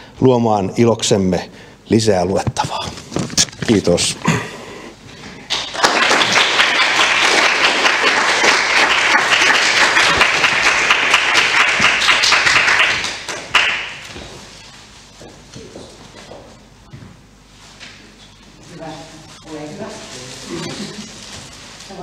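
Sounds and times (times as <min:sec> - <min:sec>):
audience applauding: 0:05.4 - 0:14.1.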